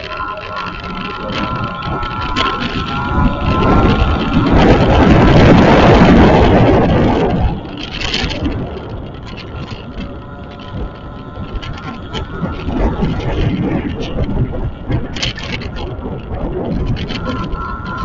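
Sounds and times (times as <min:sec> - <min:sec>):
vehicle road and wind noise: 0:00.0 - 0:18.0.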